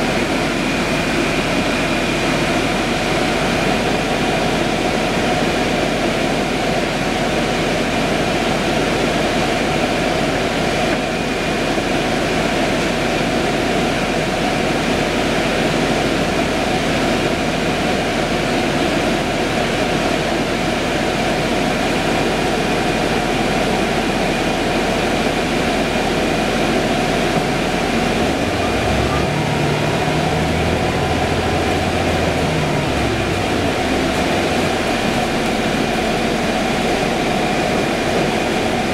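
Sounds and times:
bus drivetrain and fans drone: 0.0s - 38.9s
low humming tone: 28.2s - 38.9s.

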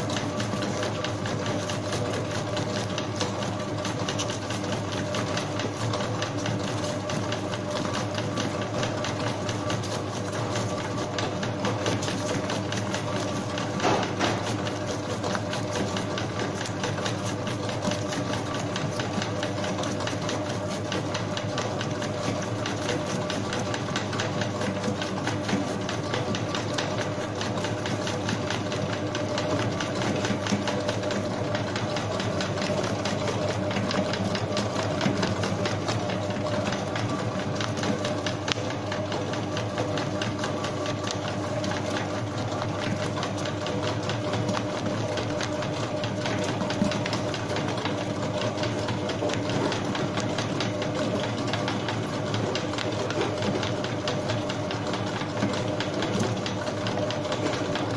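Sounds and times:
dough mixer motor hum: 0.0s - 57.9s.

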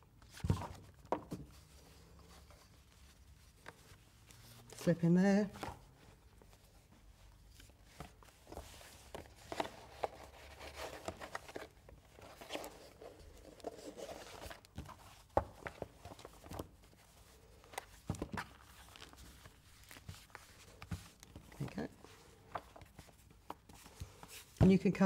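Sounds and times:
book knocking: 0.4s - 1.5s.

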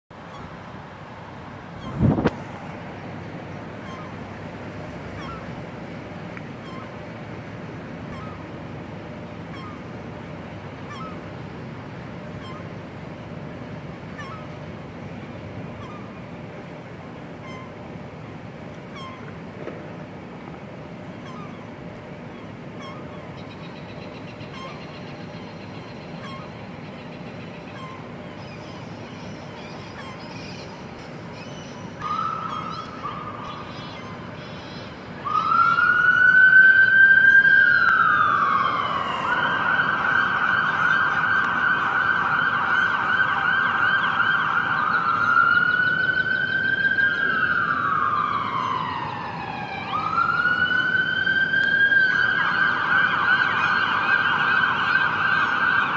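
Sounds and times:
steady background noise: 0.1s - 55.9s
emergency vehicle siren: 32.0s - 34.2s, 35.1s - 55.9s.

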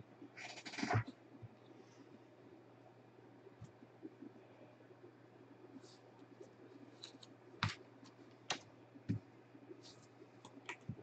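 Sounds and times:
soft rustling of card packs: 5.7s - 11.0s.

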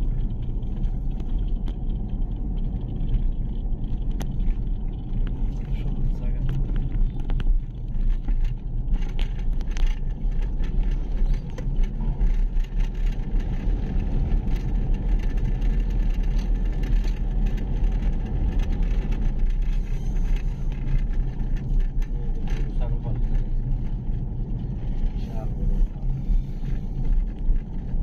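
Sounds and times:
vehicle engine and road noise: 0.0s - 28.0s.

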